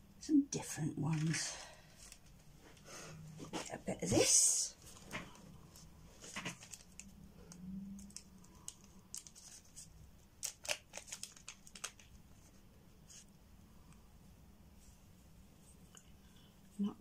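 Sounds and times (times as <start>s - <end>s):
plastic bag crinkling: 4.8s - 7.2s, 8.0s - 12.2s.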